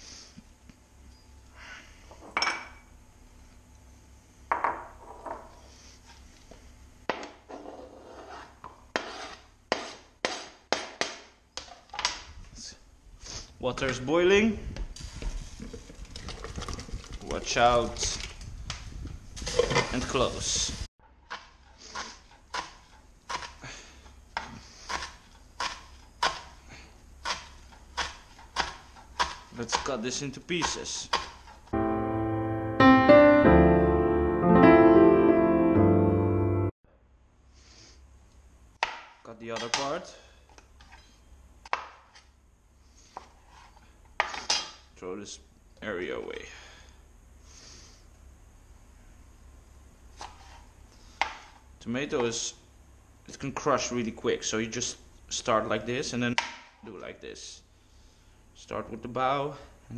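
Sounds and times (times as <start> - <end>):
knife scraping cutting board: 7.4 - 10.6, 21.3 - 23.6, 24.4 - 26.6, 43.1 - 44.4, 50.2 - 50.7
knife chopping on cutting board: 8.6 - 11.3, 24.4 - 26.6, 27.2 - 30.0, 30.6 - 31.5.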